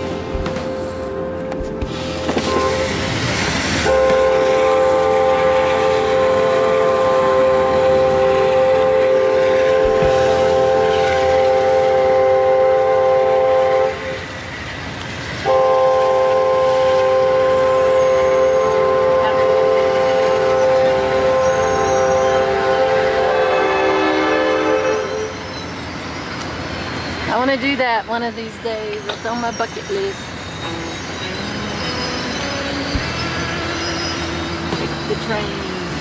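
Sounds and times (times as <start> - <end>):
train horn chord blasts: 0.0 - 14.2, 15.4 - 25.4.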